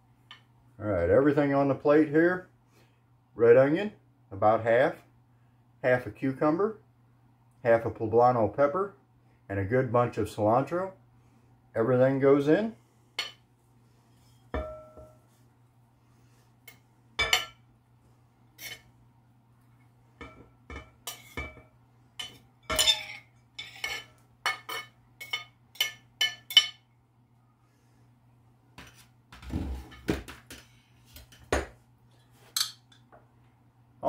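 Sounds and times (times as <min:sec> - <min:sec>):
knife clinking on ceramic plate: 0:14.6 - 0:15.2, 0:16.7 - 0:17.6, 0:20.2 - 0:26.8, 0:32.5 - 0:33.0
plate set down on wooden counter: 0:14.6 - 0:15.2.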